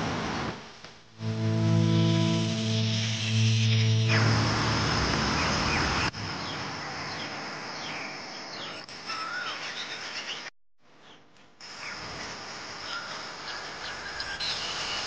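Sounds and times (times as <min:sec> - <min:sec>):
loud rushing noise: 0:01.2 - 0:06.8
birds chirping: 0:01.8 - 0:10.5.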